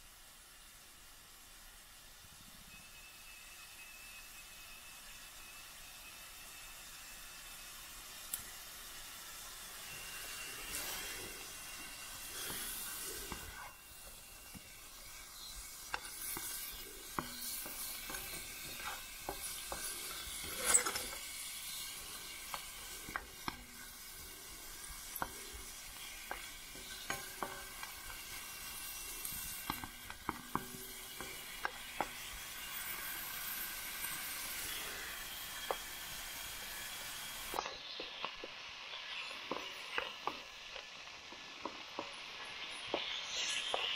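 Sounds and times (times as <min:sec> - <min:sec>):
meat sizzling in frying pan: 0:00.0 - 0:43.9
stirring clicks and scrapes: 0:09.9 - 0:32.3.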